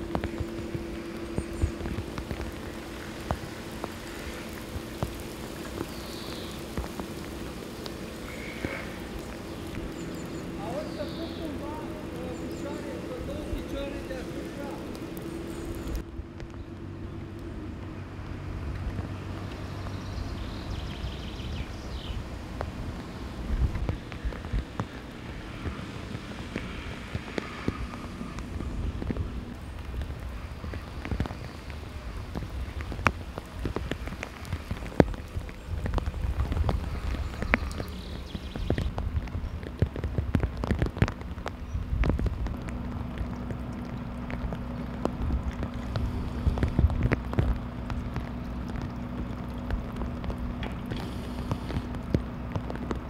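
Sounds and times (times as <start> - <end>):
drops tapping: 0.0 - 16.8
rain falling: 0.0 - 53.0
raindrops clicking: 0.0 - 53.0
wind rumbling on microphone: 0.0 - 53.0.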